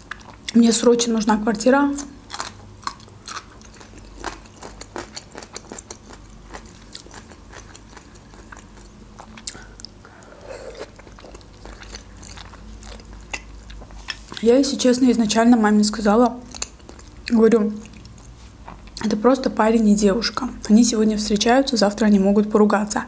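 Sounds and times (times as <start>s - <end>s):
person chewing crunchy food: 0.0s - 0.6s, 2.0s - 14.4s, 16.4s - 19.0s.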